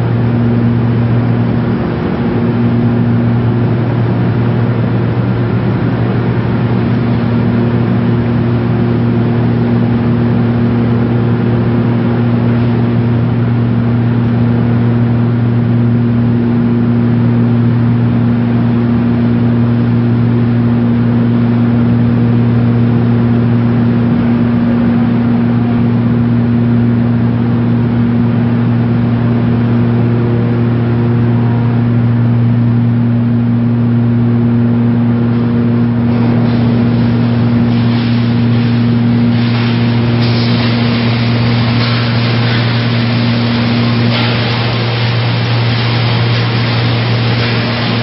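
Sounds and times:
shredder low hum: 0.0s - 48.0s
crackling and rattling of shredded waste: 35.2s - 48.0s.

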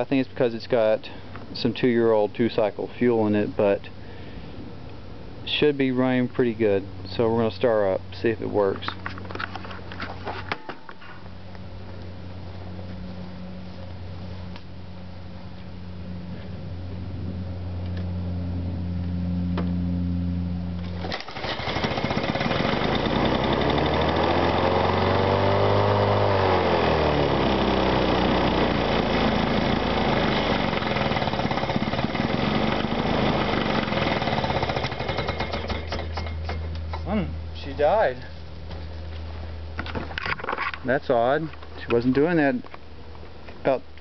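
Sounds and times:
lawn mower engine running: 17.6s - 37.0s.

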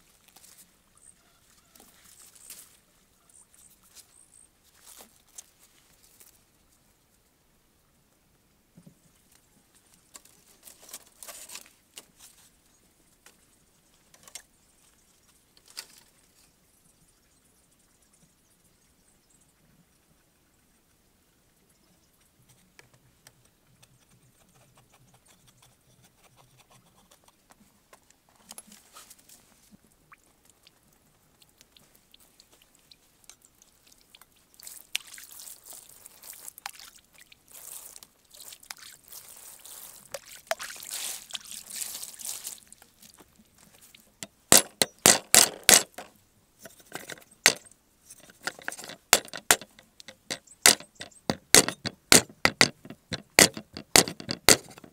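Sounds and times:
water sloshing and trickling: 28.5s - 44.4s
cleaver chopping on wooden block: 50.7s - 54.8s.

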